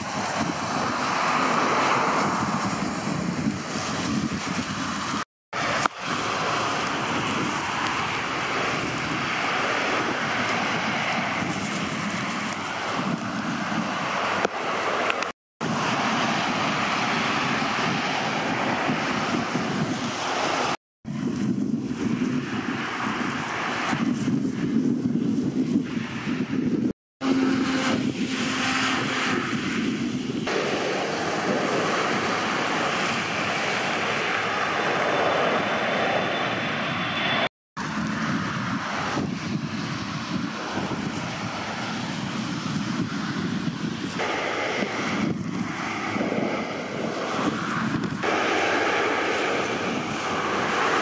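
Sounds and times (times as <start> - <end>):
airliner engines running: 0.0 - 51.0
wind buffeting microphone: 0.0 - 51.0
heavy rain hissing: 30.5 - 35.3, 44.2 - 51.0.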